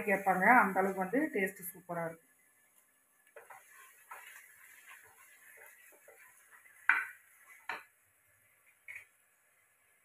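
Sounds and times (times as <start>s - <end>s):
spatula scraping in a pot: 3.2s - 7.9s.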